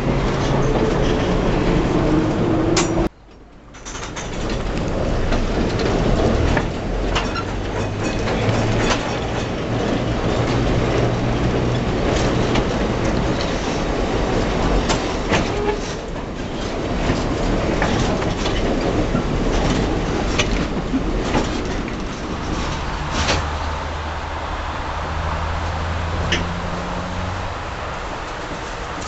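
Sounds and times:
tram running on track: 0:00.0 - 0:29.0
clicks and knocks from wheels: 0:02.8 - 0:10.7.

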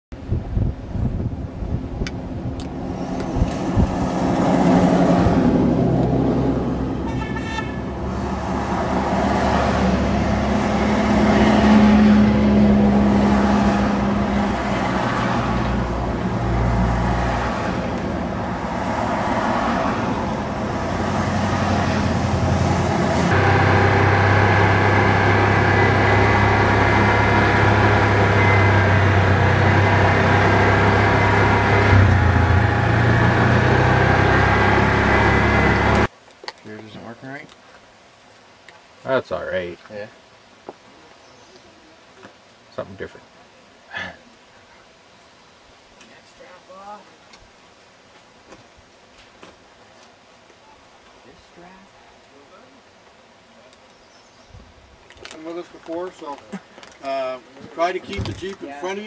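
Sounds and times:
steady engine drone: 0:01.8 - 0:36.1
vehicles driving past: 0:01.8 - 0:36.1
short horn toot: 0:07.0 - 0:07.9.

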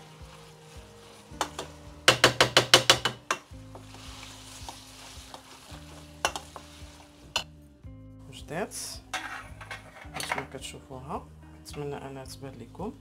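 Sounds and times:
wooden spoon knocking metal pot: 0:01.4 - 0:03.5, 0:06.2 - 0:06.6, 0:09.1 - 0:10.6.

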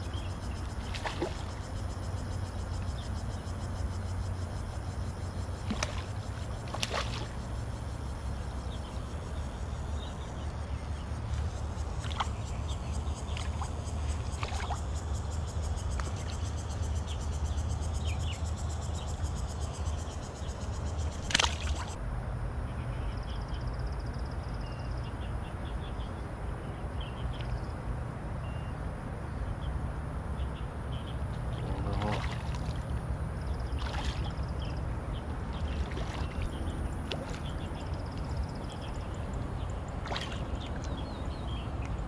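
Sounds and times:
low riverside rumble: 0:00.0 - 0:42.0
fish splashing into water: 0:00.7 - 0:01.6, 0:05.6 - 0:07.4, 0:21.2 - 0:22.0, 0:31.8 - 0:32.9, 0:33.7 - 0:34.5, 0:35.6 - 0:38.2, 0:40.0 - 0:40.9.

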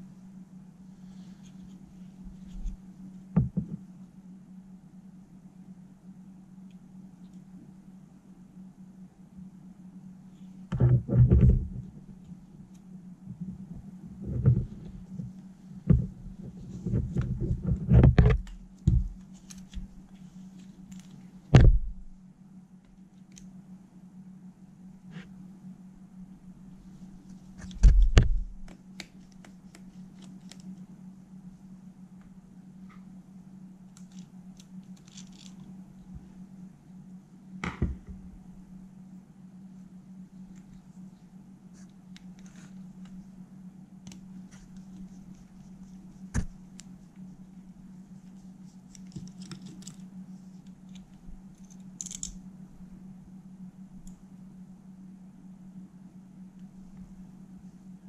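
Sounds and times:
steady low hum: 0:00.0 - 0:58.0
handling knock: 0:37.6 - 0:38.3
screwdriver clicking on metal mechanism: 0:50.9 - 0:52.4.

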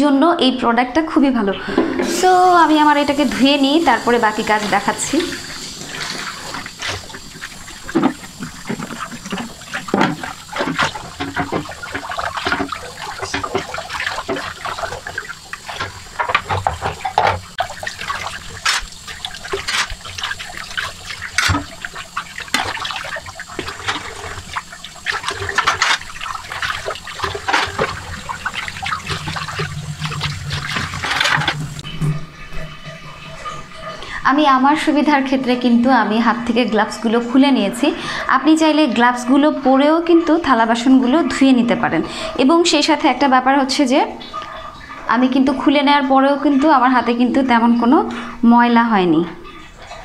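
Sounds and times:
tap running into sink: 0:01.7 - 0:33.9
dishes clinking against sink: 0:04.0 - 0:34.0.

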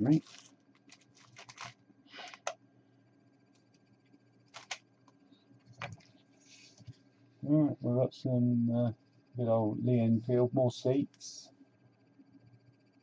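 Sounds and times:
plastic rustling on cloth: 0:00.0 - 0:02.5
faint low hum: 0:00.0 - 0:13.0.

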